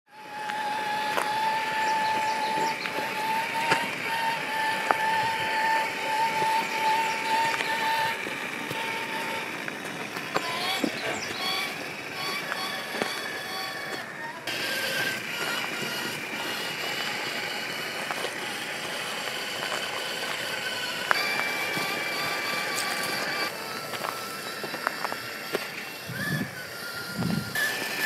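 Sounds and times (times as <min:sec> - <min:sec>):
toy car motor whining: 0:00.1 - 0:28.0
tyres clicking on gravel: 0:00.1 - 0:28.0.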